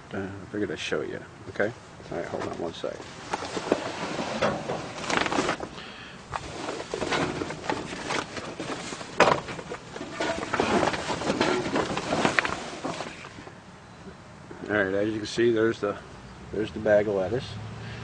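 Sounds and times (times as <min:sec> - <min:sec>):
canvas cover rustling and scraping: 0:02.3 - 0:13.5.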